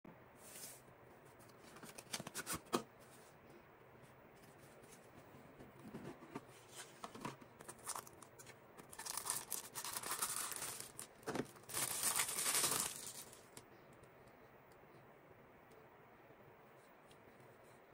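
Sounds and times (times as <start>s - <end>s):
plastic bag crinkling: 7.6s - 13.6s.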